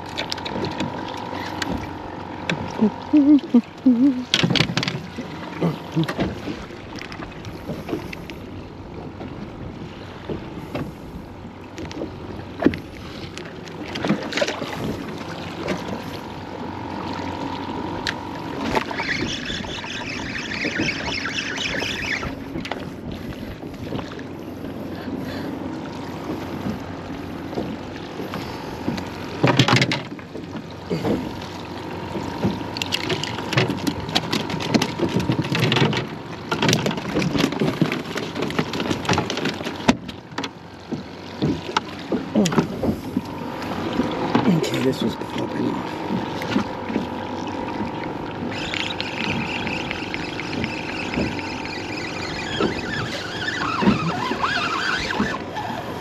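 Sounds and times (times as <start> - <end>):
waves lapping against boat hull: 0.0 - 56.0
high whirr: 42.4 - 56.0.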